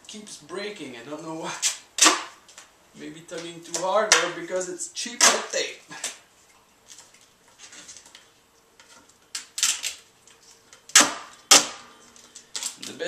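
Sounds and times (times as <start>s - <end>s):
duct tape ripping: 1.6s - 2.7s, 8.8s - 13.0s
tape rustling: 1.6s - 13.0s.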